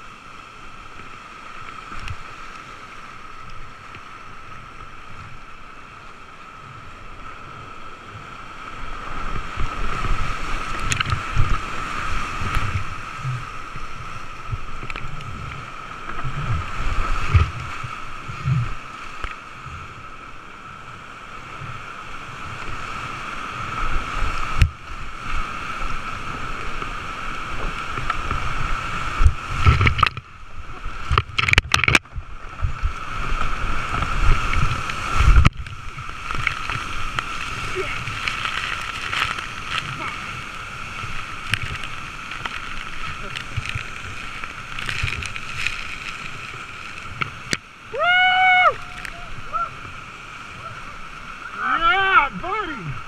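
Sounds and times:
rushing whitewater: 0.0s - 53.0s
water buffeting camera: 8.8s - 20.0s, 23.7s - 48.0s, 48.7s - 53.0s.

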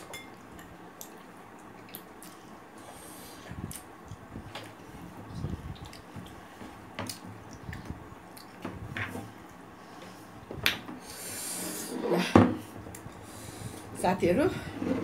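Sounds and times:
chewing and lip smacks: 0.5s - 2.6s, 5.4s - 6.4s, 7.1s - 8.6s.

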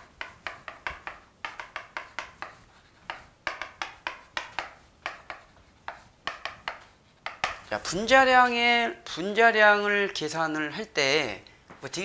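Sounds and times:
chalk writing on chalkboard: 0.0s - 7.7s.

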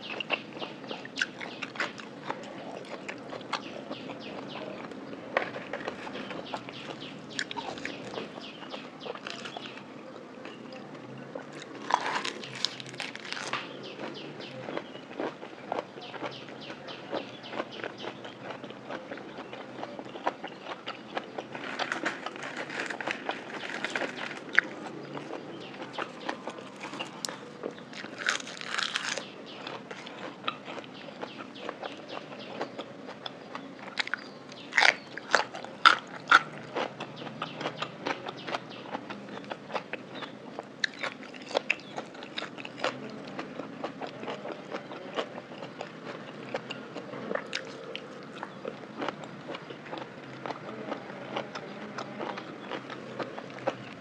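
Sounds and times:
close chewing: 0.0s - 54.0s
crunchy bites: 11.5s - 16.3s, 17.5s - 54.0s.

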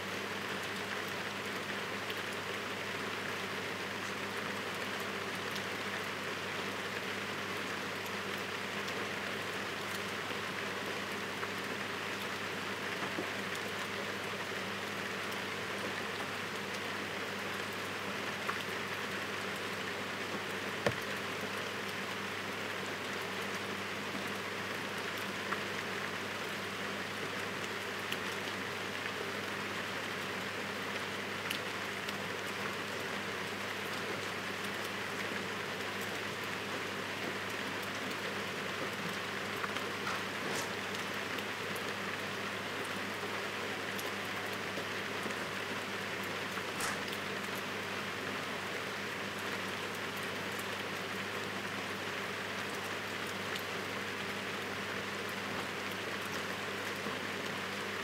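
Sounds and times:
heavy rain falling: 0.1s - 58.0s.

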